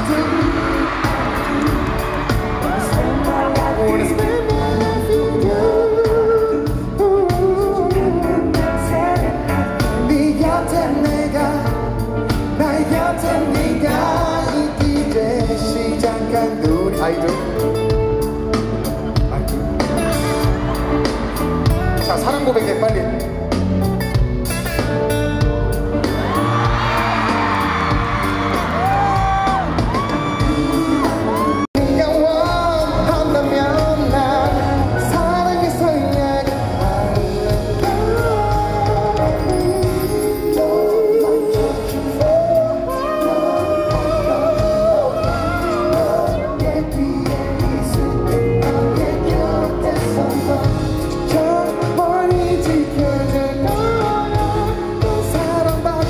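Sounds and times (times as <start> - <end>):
man singing into a microphone: 0.0 - 17.8, 30.1 - 56.0
band accompaniment: 0.0 - 56.0.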